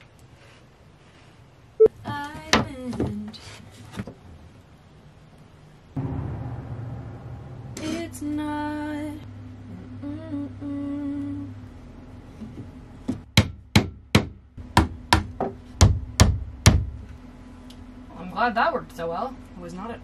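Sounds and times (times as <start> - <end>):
hammer blows: 6.0 - 9.2
woman humming: 9.6 - 11.6.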